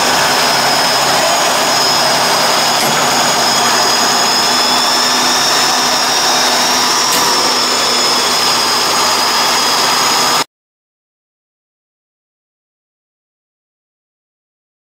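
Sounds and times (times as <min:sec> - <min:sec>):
diesel truck engine running: 0:00.0 - 0:10.4
steady high whine: 0:00.0 - 0:10.5.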